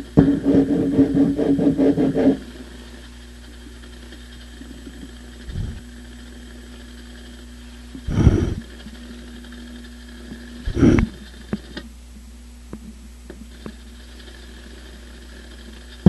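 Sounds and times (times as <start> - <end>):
steady electrical hum: 0.0 - 16.0
short low thumps: 5.5 - 5.8, 8.1 - 8.6.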